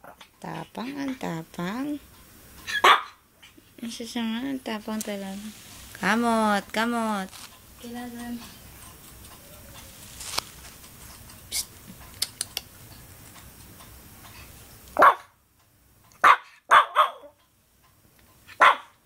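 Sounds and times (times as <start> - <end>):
puppy yapping: 2.6 - 3.6, 16.2 - 17.4, 18.6 - 19.0.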